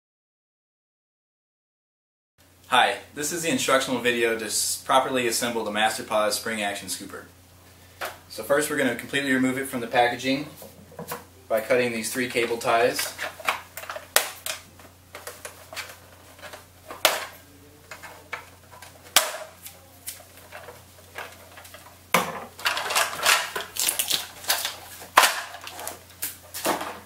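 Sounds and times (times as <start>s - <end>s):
plastic packaging crinkling: 22.5s - 27.0s.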